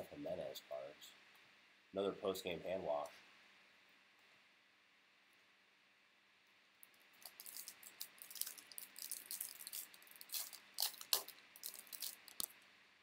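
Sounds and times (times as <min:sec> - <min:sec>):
trading cards flicking and rustling: 0:06.8 - 0:12.6.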